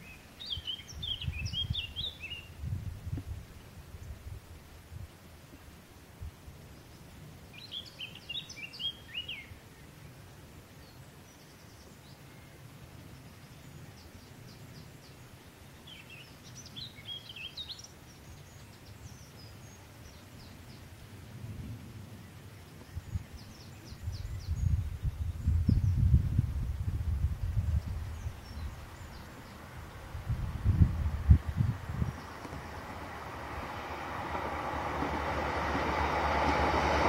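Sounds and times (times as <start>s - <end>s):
songbird chirping: 0.0s - 4.3s, 6.6s - 26.4s, 27.3s - 37.0s
low rumble: 24.0s - 37.0s.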